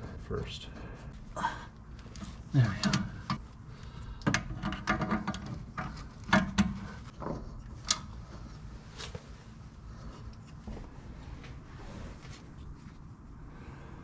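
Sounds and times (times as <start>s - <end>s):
metal clunks and knocks: 4.2s - 7.5s.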